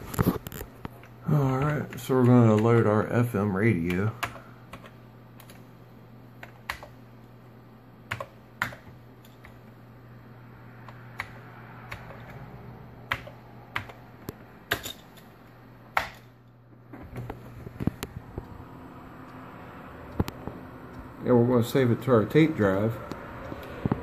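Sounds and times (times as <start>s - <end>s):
keyboard keys clicking: 0.4s - 3.1s, 6.4s - 7.0s, 8.1s - 9.6s, 10.8s - 12.4s, 13.0s - 15.0s.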